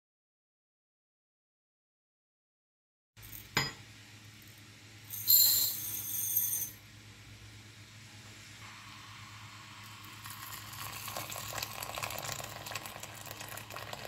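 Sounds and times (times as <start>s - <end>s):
rice poured into ceramic bowl: 10.1s - 14.0s.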